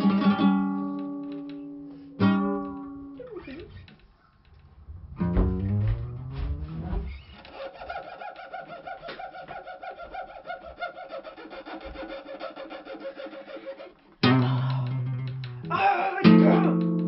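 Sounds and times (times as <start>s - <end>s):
strummed guitar chords: 14.2s - 17.0s.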